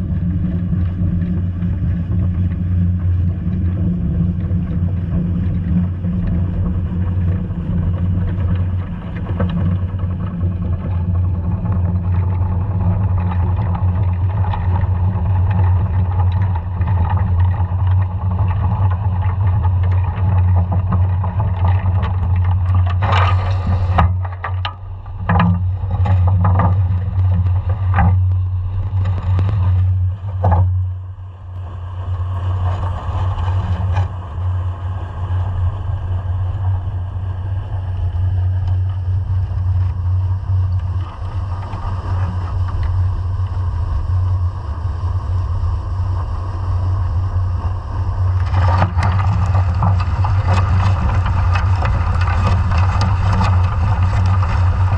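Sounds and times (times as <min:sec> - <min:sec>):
steady low underwater hum: 0:00.0 - 0:54.9
dredge knocks and scrapes: 0:03.5 - 0:31.0, 0:48.2 - 0:54.9.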